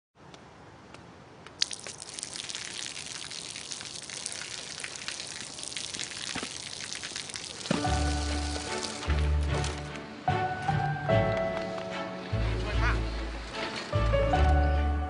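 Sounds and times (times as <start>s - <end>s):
water dripping: 1.4s - 9.3s
water splashing on pavement: 1.5s - 9.8s.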